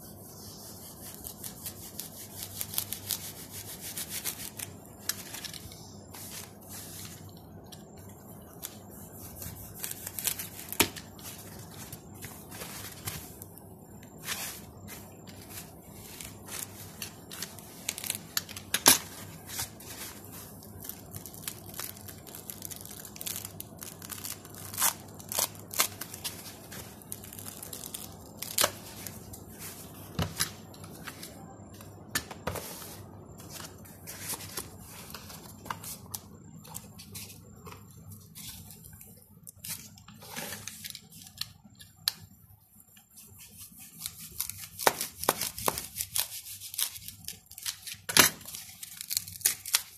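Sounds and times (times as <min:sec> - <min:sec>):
knife cutting packing foam: 0:00.7 - 0:05.6, 0:08.4 - 0:13.4, 0:14.2 - 0:31.5, 0:43.3 - 0:49.9.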